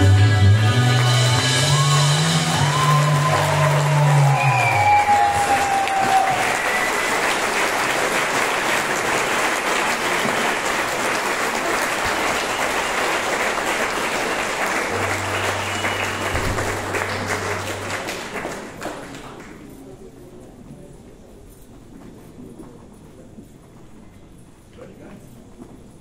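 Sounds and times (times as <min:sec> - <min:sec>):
audience clapping and cheering: 0:00.0 - 0:19.8
short whistle: 0:12.3 - 0:13.3, 0:15.1 - 0:16.8.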